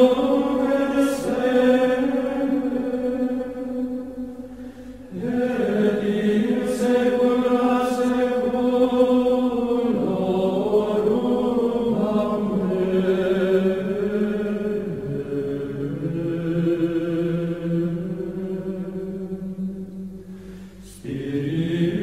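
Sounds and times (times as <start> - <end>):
slow chant-like music: 0.0 - 22.0.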